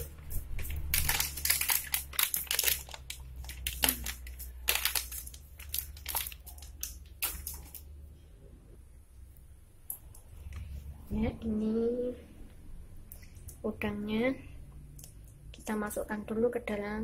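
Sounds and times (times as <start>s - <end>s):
oil crackling and popping: 0.0s - 7.9s.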